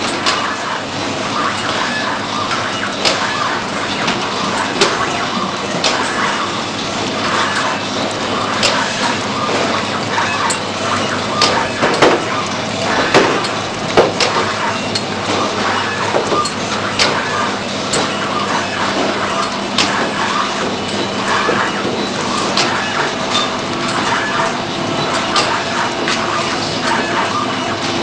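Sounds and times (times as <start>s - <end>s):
sharp clicks and knocks: 11.4s - 17.3s.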